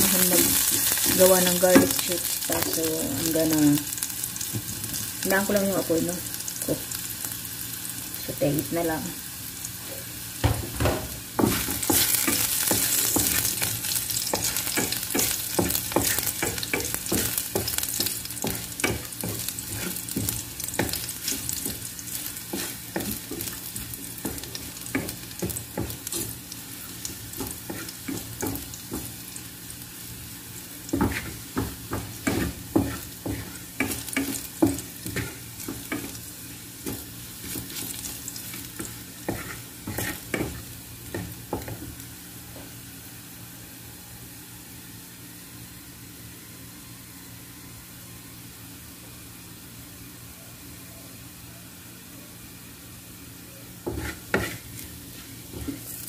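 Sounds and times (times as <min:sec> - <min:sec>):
garlic sizzling in hot oil: 0:00.0 - 0:43.0, 0:52.5 - 0:56.0
wooden spatula scraping pan: 0:18.4 - 0:26.4, 0:36.9 - 0:40.6, 0:53.8 - 0:56.0.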